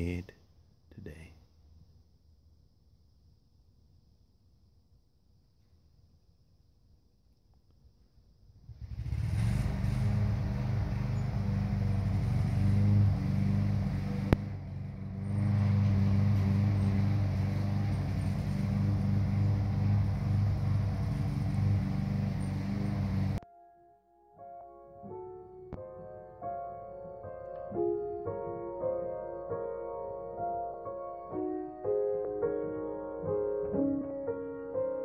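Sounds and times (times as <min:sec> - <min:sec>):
motor humming: 0:08.8 - 0:23.4.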